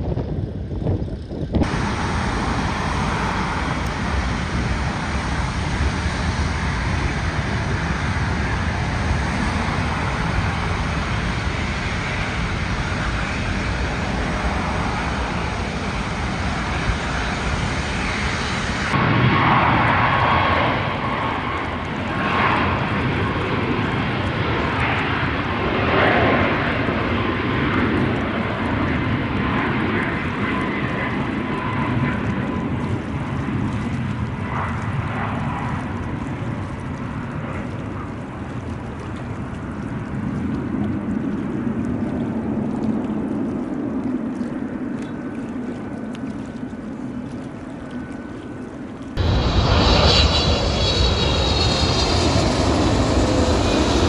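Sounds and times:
jet engines running: 0:00.0 - 0:54.0
jet roar on takeoff roll: 0:01.4 - 0:24.3, 0:49.2 - 0:54.0
road traffic passing: 0:01.6 - 0:18.9.

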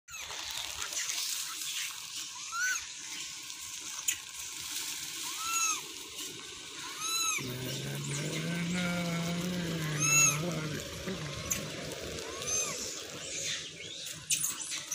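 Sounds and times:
macaques coo calls: 0:05.3 - 0:05.8, 0:06.8 - 0:13.7.

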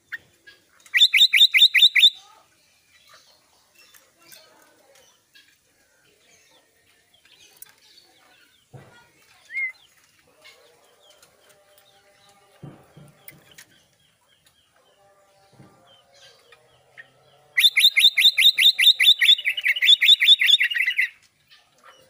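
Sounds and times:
bird calling rapid notes: 0:00.9 - 0:02.2, 0:17.6 - 0:21.2
faint knocks: 0:12.4 - 0:13.7.

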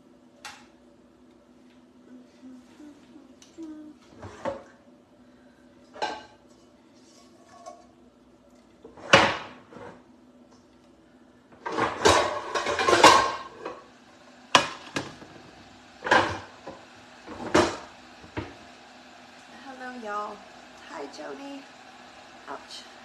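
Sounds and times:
kitchenware clattering: 0:05.9 - 0:06.4, 0:11.6 - 0:13.8
kitchenware clanking and knocking: 0:11.6 - 0:13.6.

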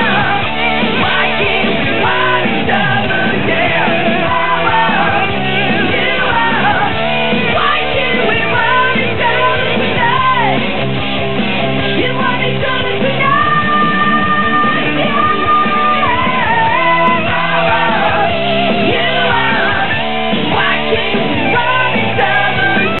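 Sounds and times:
muffled hard rock song: 0:00.0 - 0:23.0.

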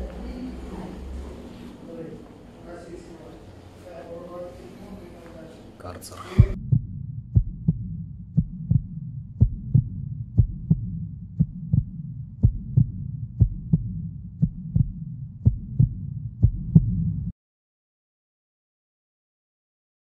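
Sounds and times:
heartbeat thumps: 0:06.4 - 0:17.3.

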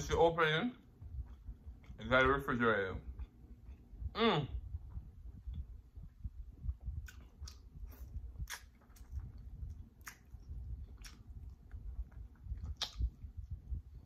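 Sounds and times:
wet mouth sounds: 0:03.1 - 0:14.0
chewing crispy chicken: 0:06.7 - 0:14.0.

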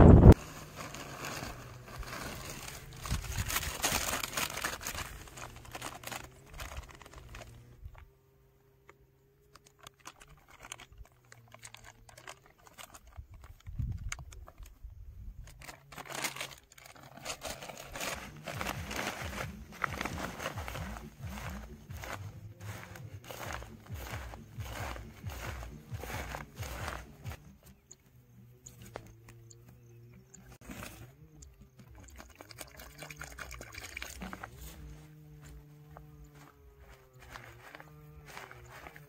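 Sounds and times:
plastic packaging crinkling: 0:00.3 - 0:07.7, 0:09.6 - 0:14.7, 0:15.4 - 0:27.5.

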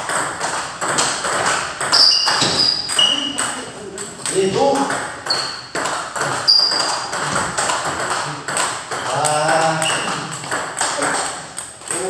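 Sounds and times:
table tennis balls clicking: 0:00.0 - 0:12.0
voices talking: 0:08.2 - 0:10.4.

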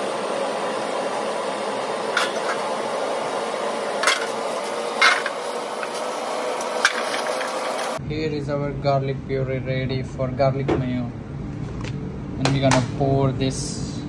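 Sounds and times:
kitchen ventilation hum: 0:00.0 - 0:14.0
utensils clattering on steel counter: 0:02.2 - 0:02.7, 0:04.0 - 0:06.0, 0:06.6 - 0:07.9.

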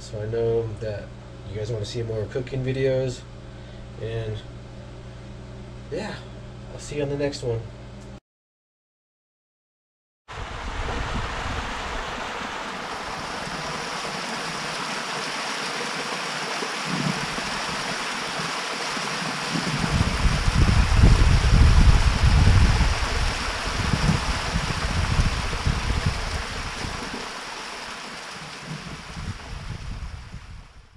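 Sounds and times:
small waterfall splashing into pool: 0:10.3 - 0:30.5
deep gusting low rumble: 0:19.7 - 0:27.2, 0:28.8 - 0:30.8.

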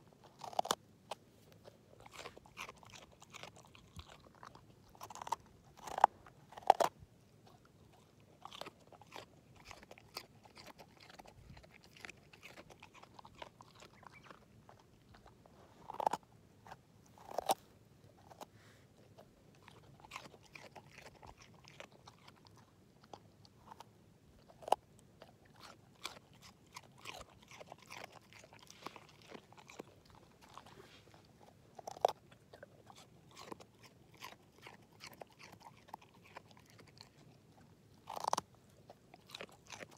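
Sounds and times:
dog chewing a carrot: 0:00.0 - 0:39.9.

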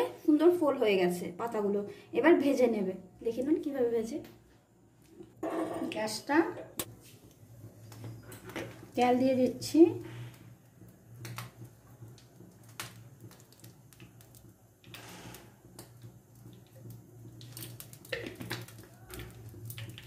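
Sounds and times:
oil trickling into frying pan: 0:07.3 - 0:20.0.

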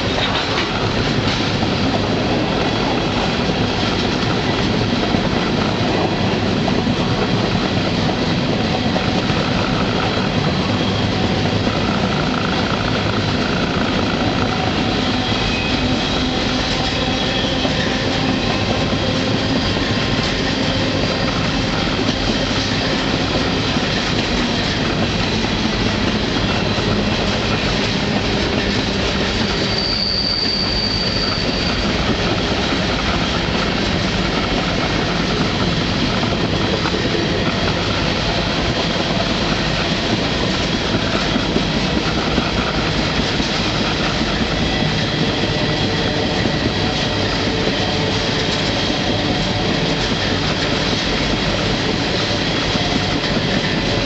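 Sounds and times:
train wheels rumbling on rails: 0:00.0 - 0:54.0
high wheel squeal: 0:10.6 - 0:19.9, 0:26.4 - 0:33.4.

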